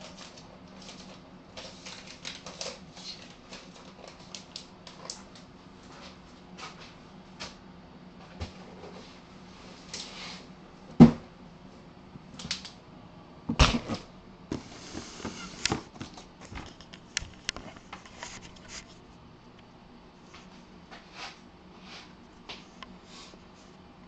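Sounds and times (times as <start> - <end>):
things being moved on a desk: 13.8 - 18.9.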